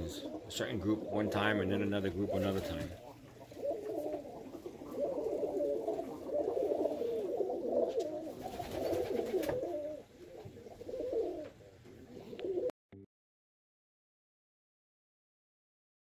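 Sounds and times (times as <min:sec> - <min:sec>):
pigeons cooing: 0:00.0 - 0:12.7.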